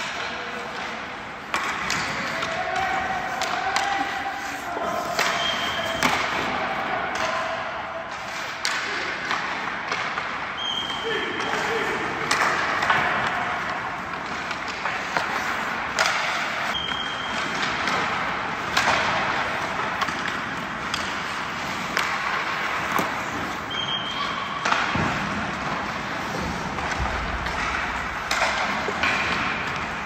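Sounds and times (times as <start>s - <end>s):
pucks cracking off sticks: 0.0s - 30.0s
skates scraping on ice: 8.1s - 30.0s.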